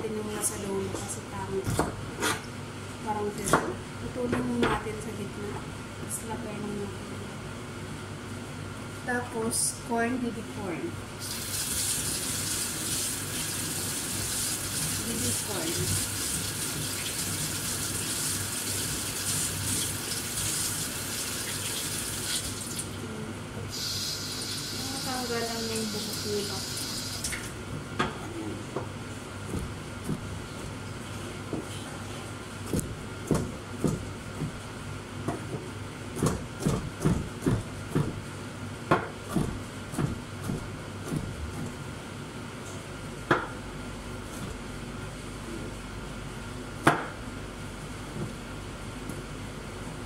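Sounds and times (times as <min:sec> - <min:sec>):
knife chopping on cutting board: 0:01.6 - 0:02.4, 0:03.4 - 0:03.8, 0:28.8 - 0:30.4, 0:32.6 - 0:34.6, 0:35.2 - 0:38.2, 0:38.9 - 0:41.8, 0:46.8 - 0:47.2.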